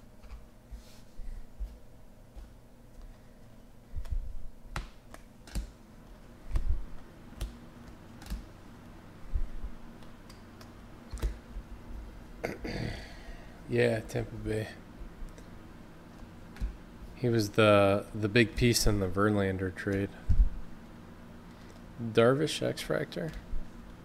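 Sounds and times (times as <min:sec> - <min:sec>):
cards clicking as flipped: 0:04.0 - 0:05.8, 0:06.5 - 0:08.6, 0:10.0 - 0:11.4.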